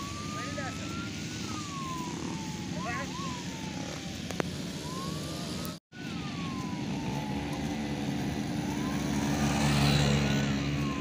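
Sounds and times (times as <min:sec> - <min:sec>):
ambulance siren wailing: 0:00.0 - 0:11.0
quad bike engines running: 0:06.9 - 0:11.0.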